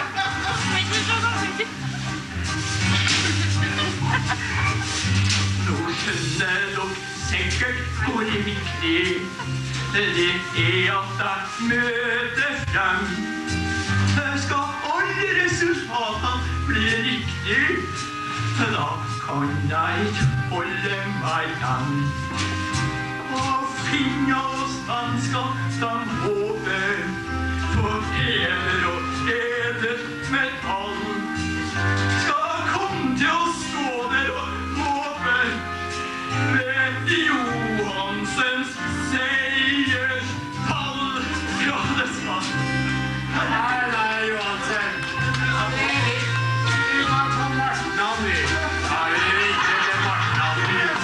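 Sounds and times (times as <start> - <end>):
instrumental accompaniment: 0.0 - 51.0
man singing into a microphone: 5.6 - 13.5, 14.1 - 18.0, 18.6 - 22.3, 23.3 - 31.4, 32.2 - 35.7, 36.3 - 42.6.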